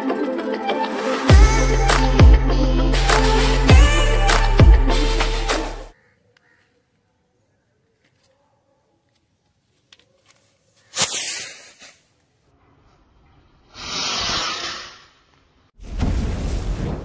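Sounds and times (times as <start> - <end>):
firework rocket whooshing: 10.9 - 12.0, 13.7 - 15.3
hissing rush: 13.7 - 15.2.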